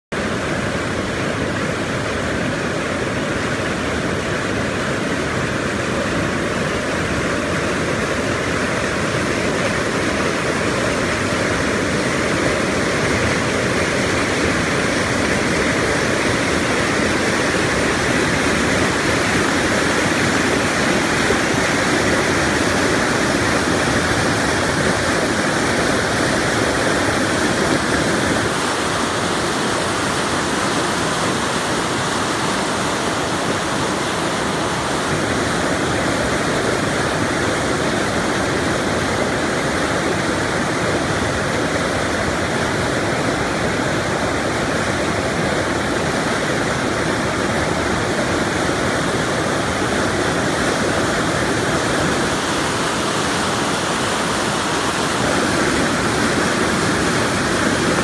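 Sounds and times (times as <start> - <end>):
water rushing over rocks: 0.1 - 58.0.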